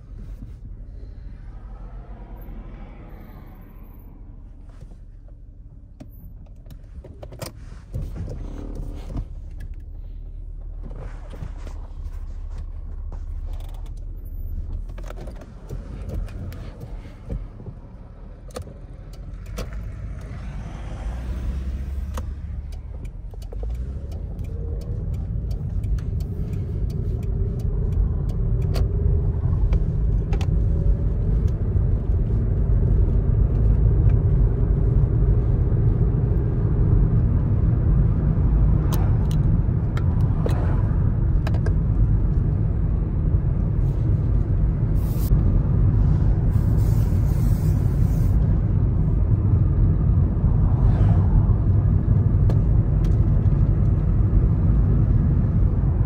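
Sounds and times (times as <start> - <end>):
car engine and road noise: 0.0 - 56.0.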